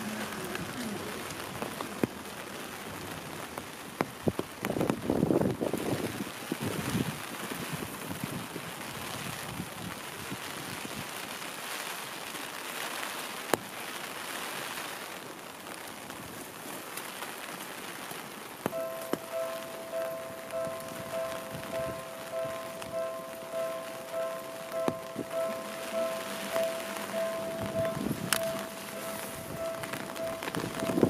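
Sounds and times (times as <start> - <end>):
heavy rain hissing: 0.0 - 31.0
sharp drips and clicks: 18.6 - 31.0
level crossing bell ringing: 18.7 - 31.0.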